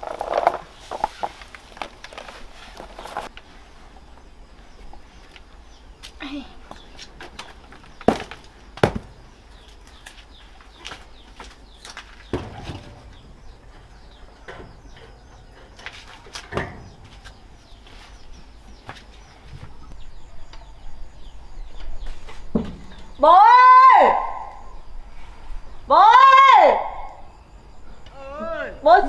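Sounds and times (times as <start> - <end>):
sharp knocks: 8.0 - 9.1
faint bird chirps: 9.2 - 23.3.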